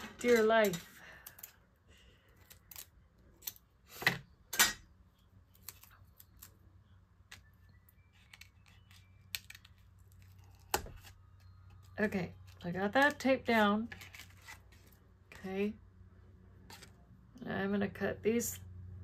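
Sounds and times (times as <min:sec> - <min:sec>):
hands handling card and tape: 0:07.3 - 0:15.0.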